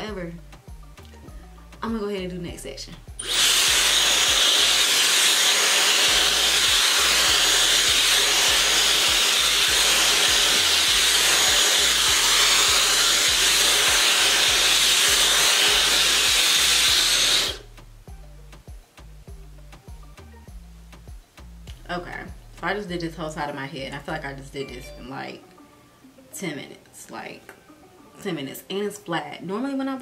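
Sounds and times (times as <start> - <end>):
hair dryer rush of air: 3.2 - 17.7.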